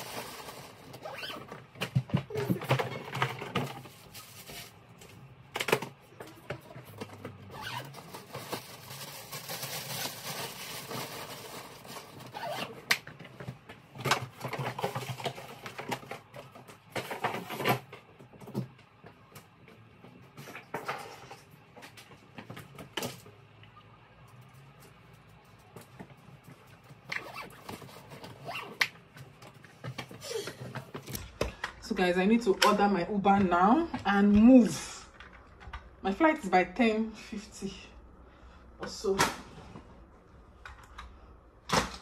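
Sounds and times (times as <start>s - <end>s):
plastic wrapping rustling: 0.0s - 1.6s, 2.3s - 5.4s, 6.9s - 12.9s.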